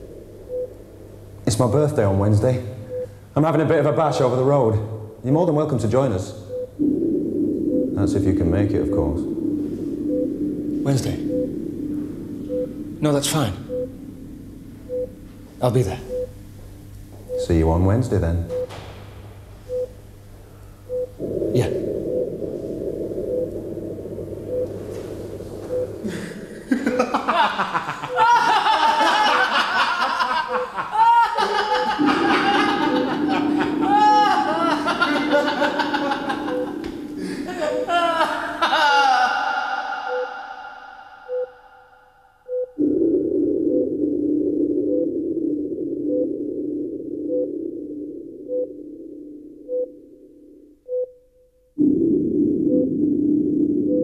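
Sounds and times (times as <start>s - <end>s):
heart monitor beeps: 0.0s - 2.1s, 2.8s - 3.2s, 6.4s - 18.9s, 19.7s - 20.0s, 20.6s - 27.2s, 31.6s - 37.9s, 38.8s - 51.2s, 51.8s - 54.0s
steady low drone: 0.0s - 3.0s, 6.4s - 18.4s, 19.0s - 29.5s, 31.5s - 50.8s, 51.8s - 54.0s
short repeating beep: 11.2s - 11.6s, 13.7s - 13.9s, 16.1s - 16.3s, 20.9s - 21.1s, 25.7s - 25.9s, 40.0s - 41.9s, 50.9s - 51.2s
person laughing: 26.0s - 41.2s.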